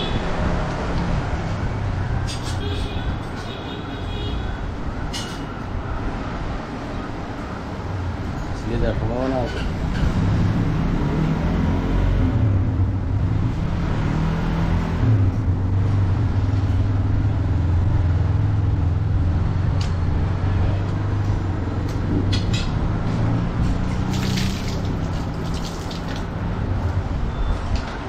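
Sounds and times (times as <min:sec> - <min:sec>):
water poured from a mug: 0:24.1 - 0:26.3.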